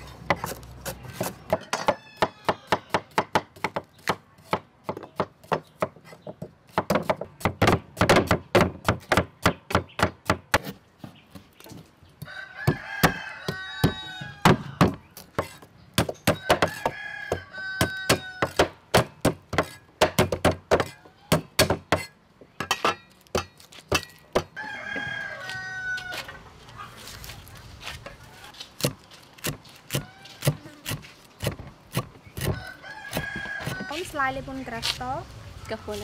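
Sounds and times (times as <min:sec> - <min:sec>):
rooster crowing: 0:01.5 - 0:03.1, 0:12.2 - 0:14.9, 0:16.4 - 0:18.6, 0:24.6 - 0:26.4, 0:32.4 - 0:34.1.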